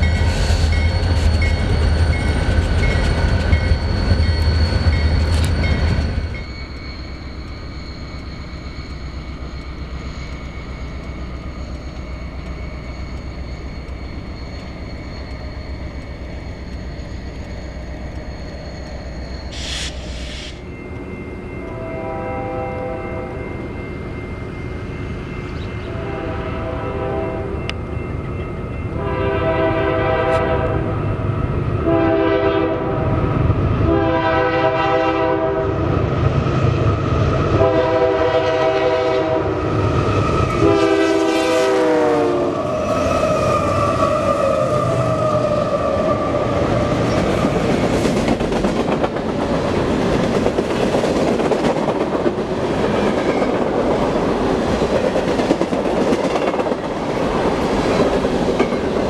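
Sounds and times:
locomotive air horn blasts: 0:21.7 - 0:23.3, 0:25.9 - 0:27.5, 0:29.0 - 0:30.9, 0:31.8 - 0:33.1, 0:33.9 - 0:35.8, 0:37.6 - 0:39.6, 0:40.6 - 0:42.6.

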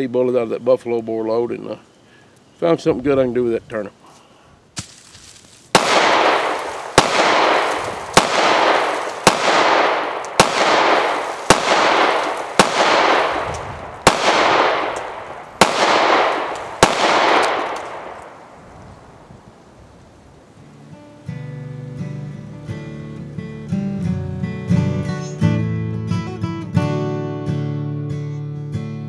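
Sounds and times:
pistol shots with echo: 0:05.7 - 0:19.2.

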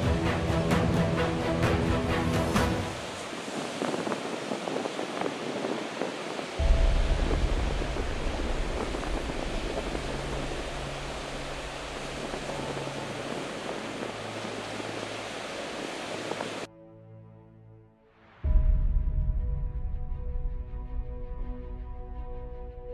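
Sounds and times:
background music with deep bass: 0:00.0 - 0:03.2, 0:06.6 - 0:22.9
ocean surf washing onto beach: 0:00.0 - 0:16.7.

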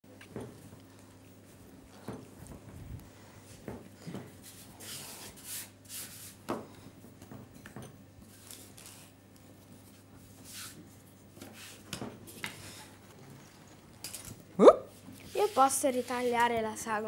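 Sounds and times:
hands rubbing sugar paste: 0:04.4 - 0:06.5, 0:08.3 - 0:11.9, 0:14.9 - 0:16.6.

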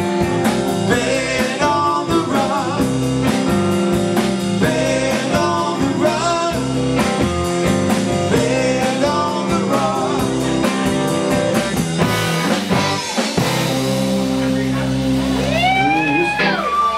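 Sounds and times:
bass guitar: 0:00.0 - 0:16.9
drum kit: 0:00.0 - 0:16.9
electric guitar: 0:00.0 - 0:16.9
man singing: 0:00.8 - 0:03.3, 0:04.6 - 0:06.9, 0:08.2 - 0:10.8.

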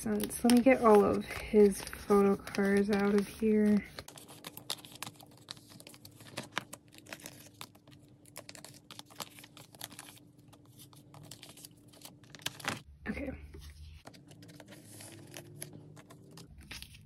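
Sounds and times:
plastic sleeves crinkling: 0:00.0 - 0:12.9, 0:13.8 - 0:17.0.

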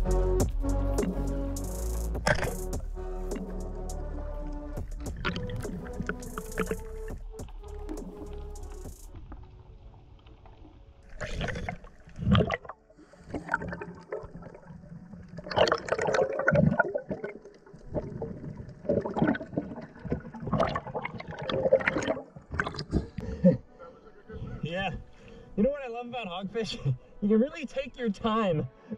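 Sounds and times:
water gurgling and sloshing: 0:02.2 - 0:23.7.

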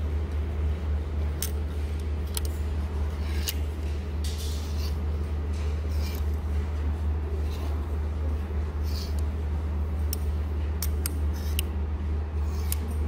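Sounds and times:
steady low hum: 0:00.0 - 0:13.0
hangers clicking together: 0:01.4 - 0:06.4
hangers scraping along rack: 0:02.6 - 0:07.9, 0:08.6 - 0:09.4, 0:10.8 - 0:11.6, 0:12.4 - 0:13.0.

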